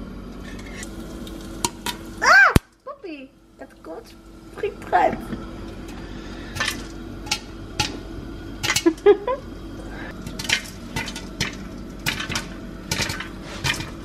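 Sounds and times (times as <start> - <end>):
popcorn popping: 0.8 - 2.8, 6.5 - 9.2, 10.1 - 14.0.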